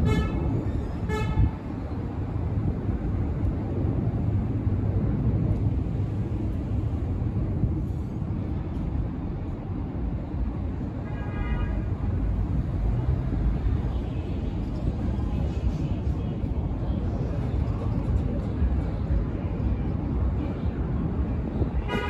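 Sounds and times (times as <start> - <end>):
distant train: 0.0 - 11.0
city traffic rumble: 0.0 - 22.0.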